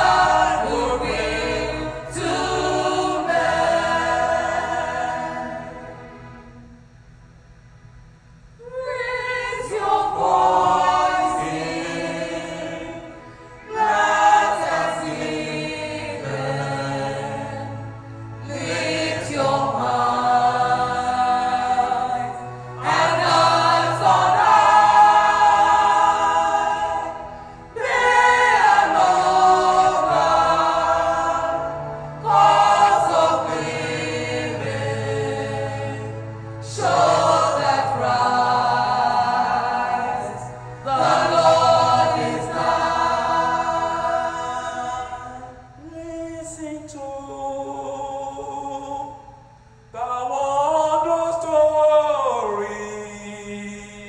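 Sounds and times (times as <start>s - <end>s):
women's choir singing: 0.0s - 6.2s, 8.6s - 45.6s.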